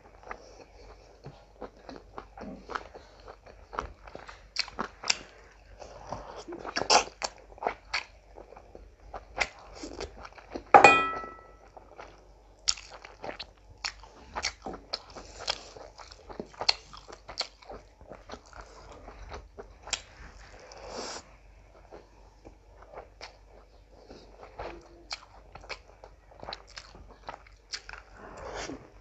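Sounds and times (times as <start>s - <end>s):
wet chewing and lip smacks: 1.2s - 5.4s, 12.6s - 20.1s, 21.9s - 28.1s
loud ringing clink: 10.8s - 11.5s.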